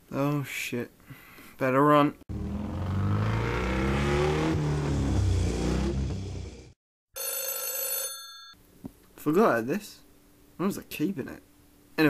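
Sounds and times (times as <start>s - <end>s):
motorbike engine revving: 2.3s - 6.8s
phone ringing: 7.2s - 8.6s.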